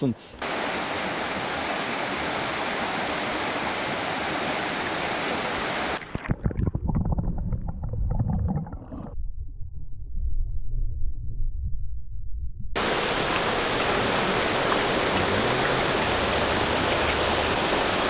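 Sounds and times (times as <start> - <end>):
river rapids rushing: 0.4 - 6.0, 12.8 - 18.0
underwater current burble: 6.0 - 9.2.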